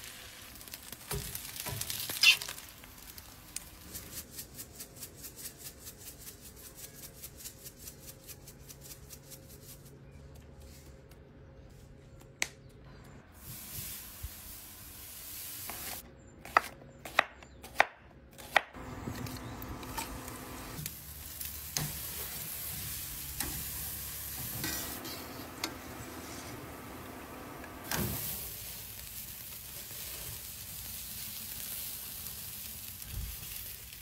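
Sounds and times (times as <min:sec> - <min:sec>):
onions sizzling in hot oil: 0:00.0 - 0:03.9, 0:19.6 - 0:34.0.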